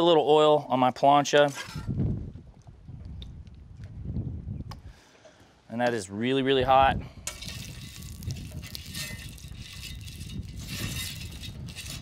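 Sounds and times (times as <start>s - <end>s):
oil sizzling on hot plancha: 7.3s - 12.0s.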